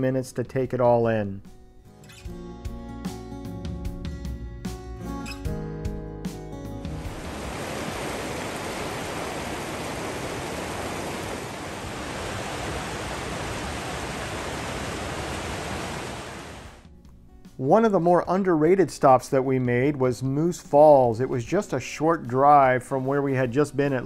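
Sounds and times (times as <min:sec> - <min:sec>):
guitar music: 0:01.4 - 0:07.5, 0:16.8 - 0:17.7
rushing water: 0:06.9 - 0:16.8.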